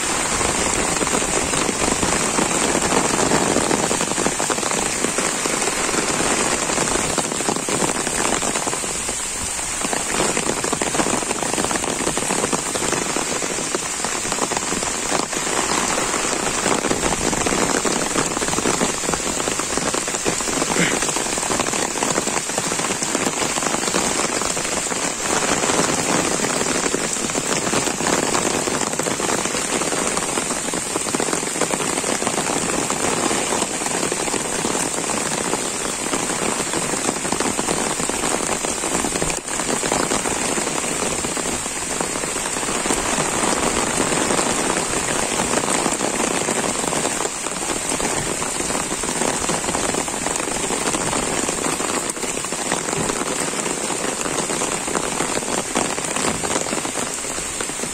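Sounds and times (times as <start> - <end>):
heavy rain on leaves: 0.0 - 57.9.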